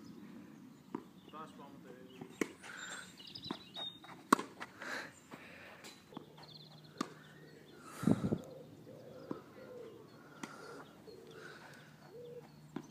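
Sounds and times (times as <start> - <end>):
racket hitting tennis balls: 3.5 - 4.8, 7.0 - 7.2.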